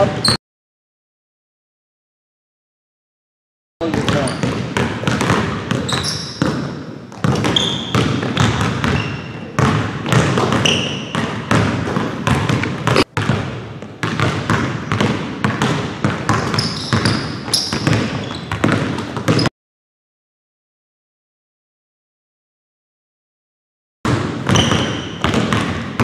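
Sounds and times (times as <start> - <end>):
sneaker squeaks: 0.0 - 0.4, 3.8 - 13.1, 16.3 - 19.5, 24.5 - 25.8
basketballs bouncing on hardwood floor: 3.8 - 19.5, 24.1 - 26.0.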